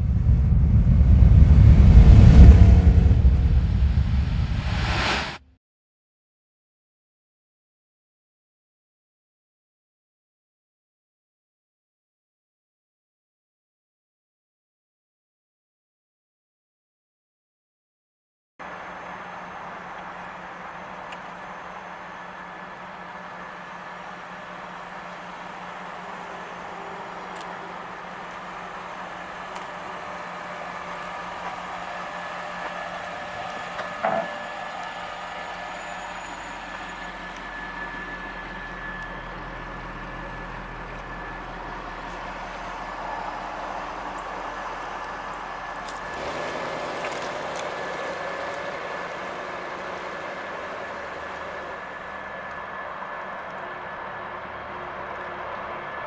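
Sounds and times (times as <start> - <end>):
car engine idling: 18.6 - 56.0
car pulling away: 18.6 - 56.0.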